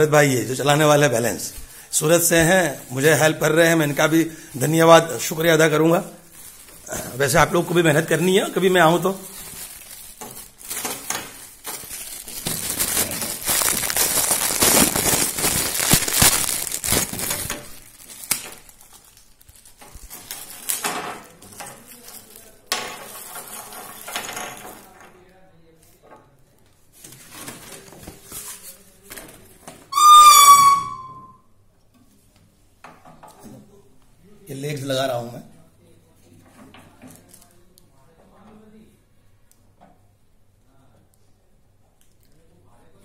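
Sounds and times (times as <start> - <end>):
plastic bag rustling: 0.4 - 24.1
loud high tone: 30.0 - 31.4.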